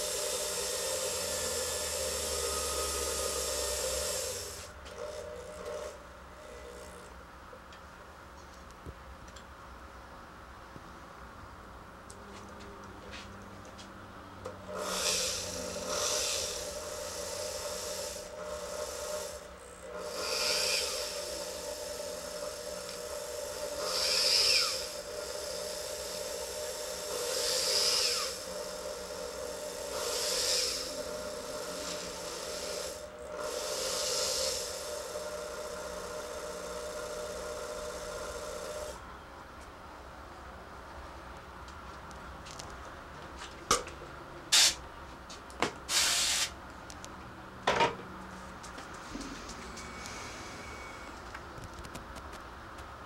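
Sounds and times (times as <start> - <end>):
rotary tool whining: 0.0 - 7.1, 14.6 - 39.1, 49.2 - 52.0.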